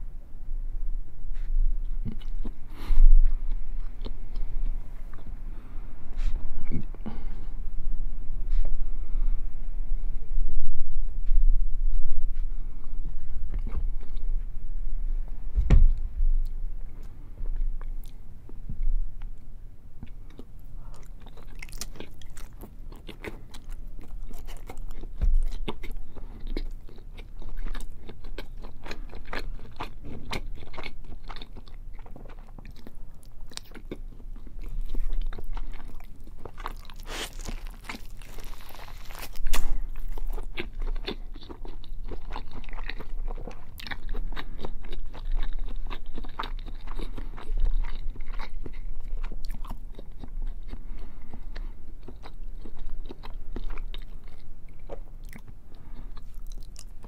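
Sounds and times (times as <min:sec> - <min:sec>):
chewing bacon: 0:01.8 - 0:05.4, 0:20.0 - 0:57.0
mouth clicks and crunches: 0:20.0 - 0:57.0.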